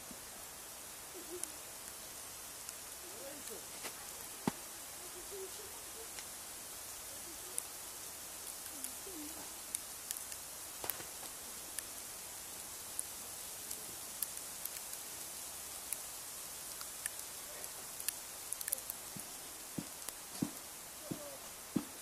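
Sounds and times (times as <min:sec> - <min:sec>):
outdoor hiss: 0:00.0 - 0:22.0
sharp ticks: 0:12.9 - 0:15.1, 0:16.7 - 0:19.0.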